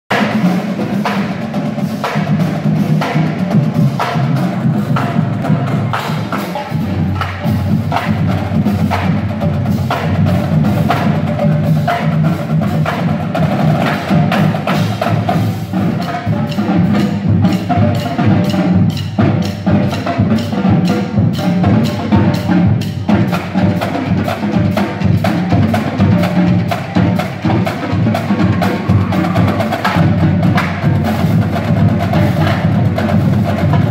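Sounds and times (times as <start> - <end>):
marching bass drums booming: 0.1 - 33.9
snare drums playing: 0.1 - 33.9.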